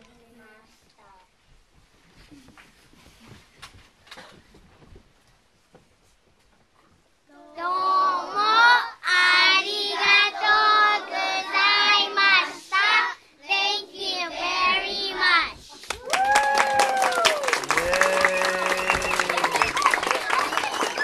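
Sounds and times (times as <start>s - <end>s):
children singing: 7.6s - 15.5s.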